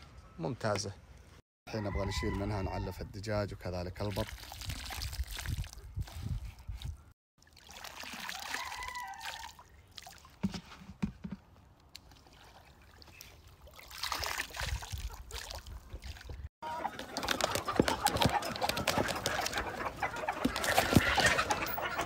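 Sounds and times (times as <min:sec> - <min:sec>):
water trickling and sloshing: 0:03.9 - 0:16.5
water dripping into bucket: 0:04.0 - 0:06.2, 0:07.4 - 0:10.5.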